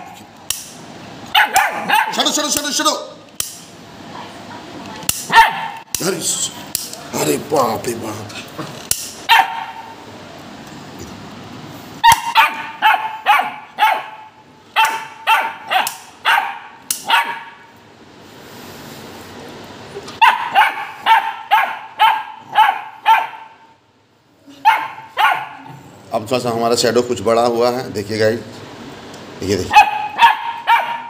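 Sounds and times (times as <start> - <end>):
dog barking aggressively: 0.0 - 0.2, 1.3 - 2.4, 5.2 - 5.9, 9.2 - 10.0, 12.0 - 17.7, 20.2 - 23.7, 24.6 - 25.8, 29.7 - 31.0.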